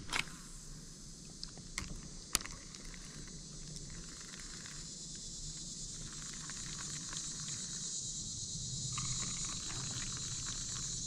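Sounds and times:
sharp click: 0.0s - 0.6s
insects droning: 0.0s - 11.0s.

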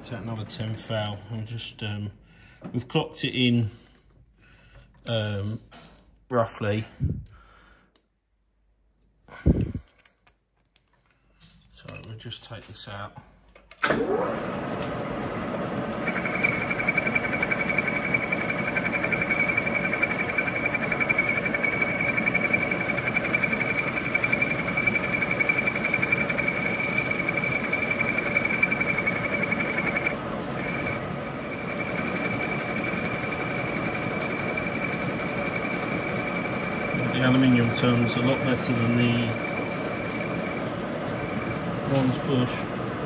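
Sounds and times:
milling machine spindle running: 14.1s - 43.0s
high-pitched cutting whine: 16.0s - 42.7s.

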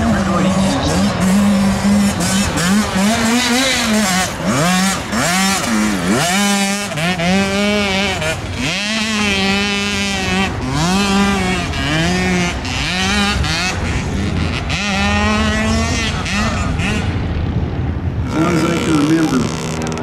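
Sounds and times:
dirt bike engines racing: 0.0s - 20.0s.

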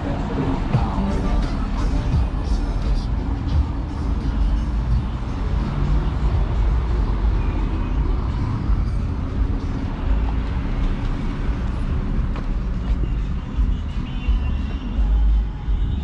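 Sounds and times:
tyres rumbling over cobblestones: 0.0s - 16.0s.

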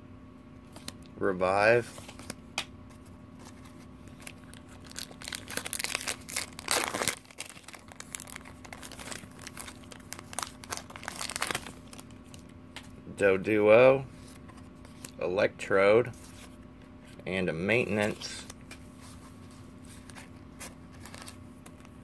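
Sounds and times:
foil wrapper torn and crinkling: 4.1s - 12.5s, 20.9s - 21.9s.

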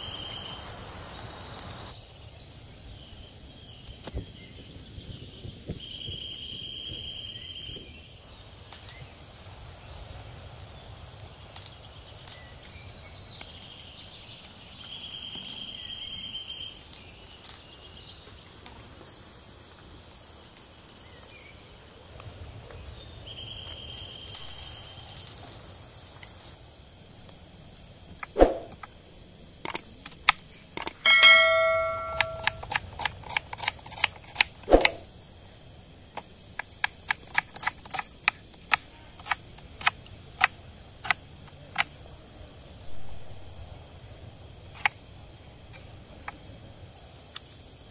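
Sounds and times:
shrill insect chorus: 0.0s - 47.9s
loud ringing clink: 31.0s - 32.7s
sharp knock: 31.1s - 32.6s.

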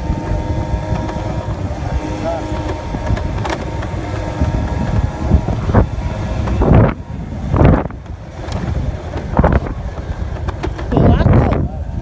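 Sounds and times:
scooter engine hum: 0.0s - 12.0s
wind noise on microphone: 0.0s - 12.0s.

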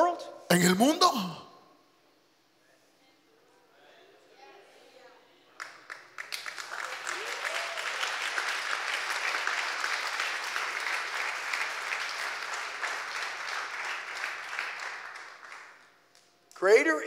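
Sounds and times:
congregation applauding: 5.6s - 16.8s.

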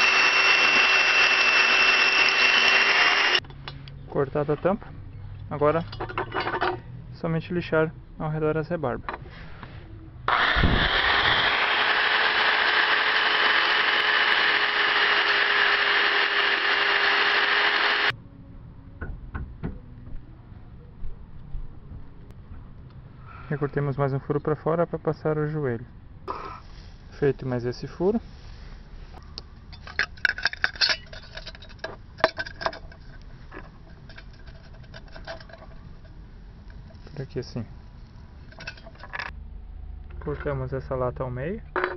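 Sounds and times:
electric drill grinding metal: 0.0s - 3.4s, 10.3s - 18.1s.

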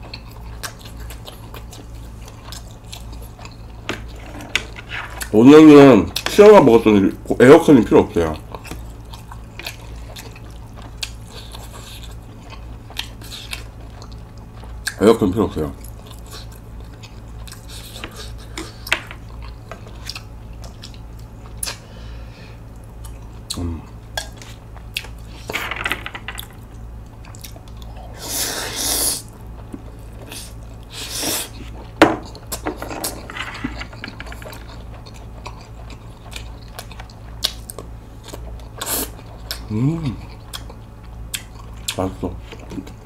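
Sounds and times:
wet chewing: 0.0s - 4.2s, 8.2s - 15.0s, 15.8s - 21.8s, 26.4s - 28.2s, 33.9s - 43.0s
low steady hum: 0.0s - 43.0s.

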